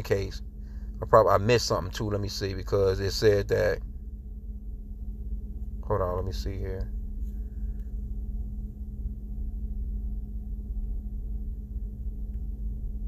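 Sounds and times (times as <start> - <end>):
constant low tone: 0.0 - 13.0
low background hum: 0.0 - 13.0.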